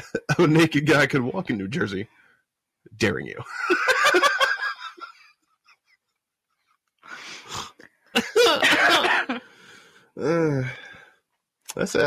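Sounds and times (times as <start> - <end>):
person laughing: 0.0 - 0.7, 8.2 - 9.4.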